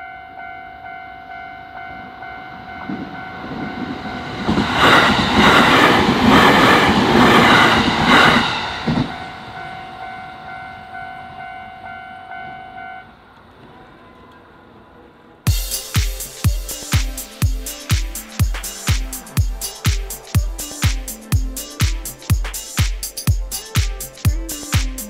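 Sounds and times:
train passing: 0.0 - 24.7
train wheels clattering: 2.8 - 10.3.

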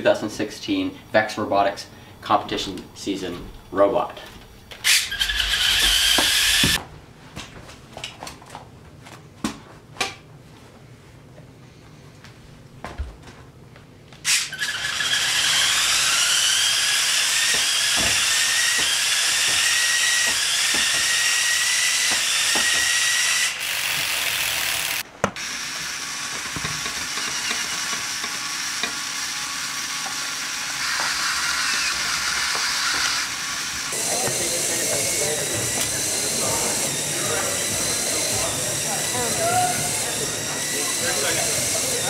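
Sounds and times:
flywheel motor whirring whine: 4.4 - 6.8, 14.3 - 42.0.

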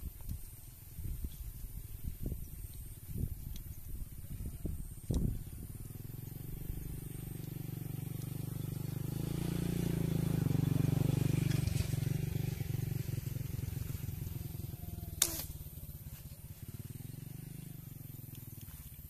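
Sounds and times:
motorcycle engine passing: 2.0 - 19.0
sharp click: 15.2 - 15.6.

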